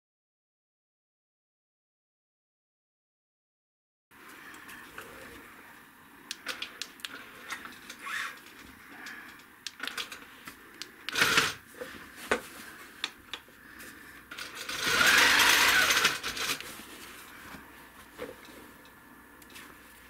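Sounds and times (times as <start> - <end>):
handling clicks: 6.3 - 11.4
quilting machine stitching: 11.1 - 11.6, 14.4 - 16.6.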